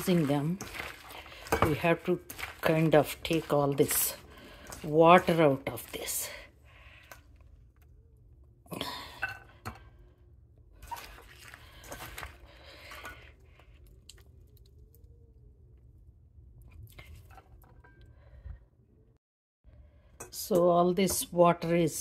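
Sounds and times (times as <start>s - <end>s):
wet vegetable pieces squished by hand: 0.0s - 6.4s, 10.8s - 15.0s.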